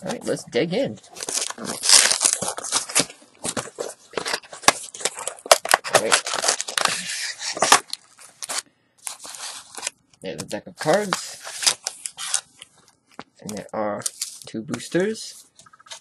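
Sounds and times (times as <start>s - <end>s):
packaging tearing and crinkling: 1.1s - 10.0s.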